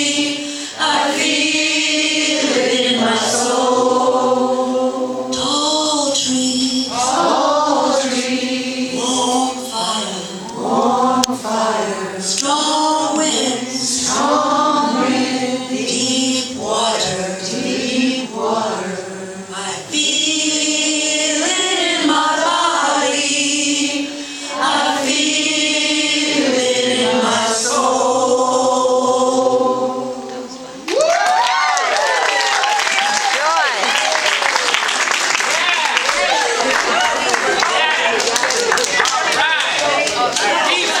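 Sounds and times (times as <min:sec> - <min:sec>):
group singing held notes: 0:00.0 - 0:33.1, 0:34.4 - 0:41.0
woman chanting: 0:05.3 - 0:20.8.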